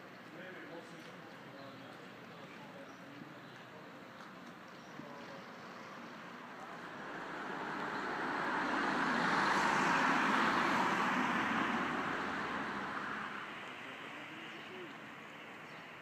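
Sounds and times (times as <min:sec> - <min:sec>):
vehicle passing by: 0:06.4 - 0:15.0.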